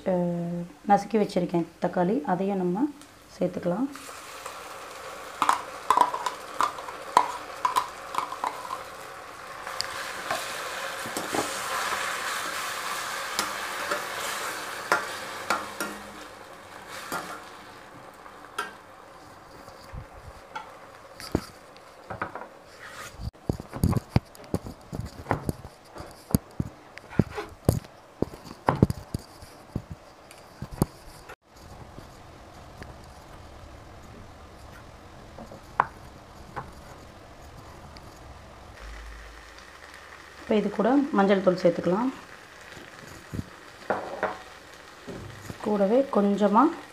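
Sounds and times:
onions sizzling in hot oil: 1.9 - 23.4, 35.1 - 46.9
spatula scraping a steel pan: 22.7 - 23.3.

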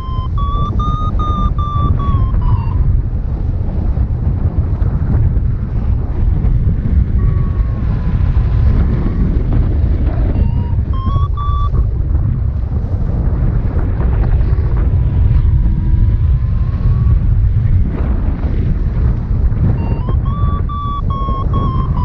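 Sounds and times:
variometer beeping: 0.0 - 3.0, 7.2 - 9.0, 10.1 - 11.9, 19.7 - 22.0
wind rushing over microphone: 0.0 - 22.0.

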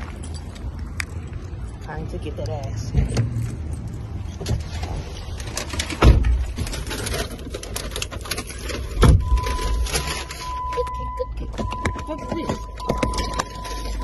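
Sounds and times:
rustling and handling noise: 3.3 - 14.0.

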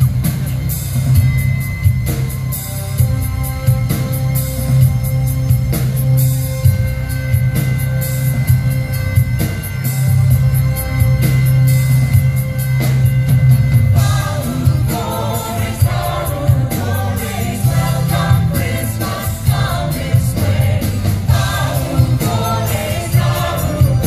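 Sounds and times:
live band playing: 0.0 - 24.0
group of people singing: 14.0 - 24.0.

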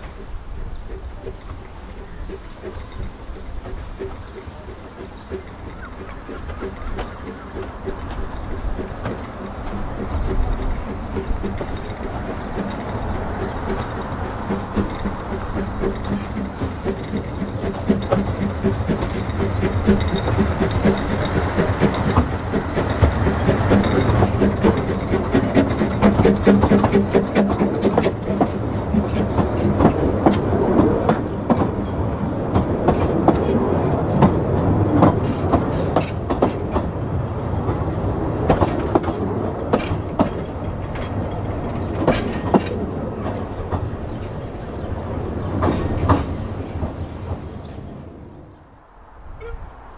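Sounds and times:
steam locomotive working hard: 0.0 - 48.6
coaches clicking over rail joints: 0.0 - 49.7.

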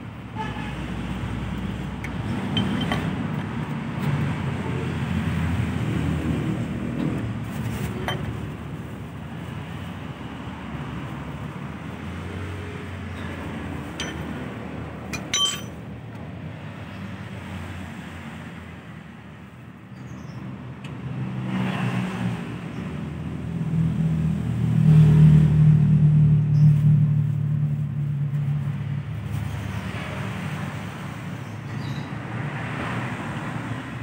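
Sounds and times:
road traffic rumble: 0.0 - 34.0
metal tools clinking: 2.4 - 3.2, 14.0 - 14.4, 15.1 - 15.8.

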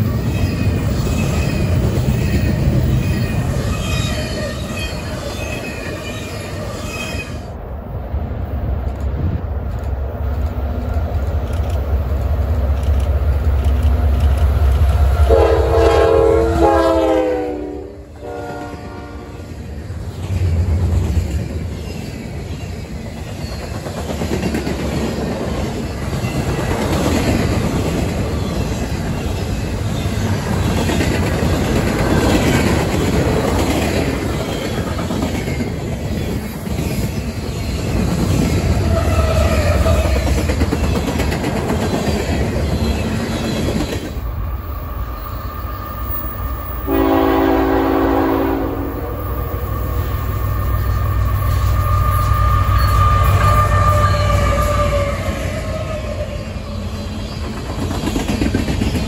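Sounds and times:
train air horn: 15.1 - 19.5, 46.8 - 50.1, 51.5 - 56.2
train wheels clattering on rails: 20.0 - 44.7, 56.8 - 59.0.

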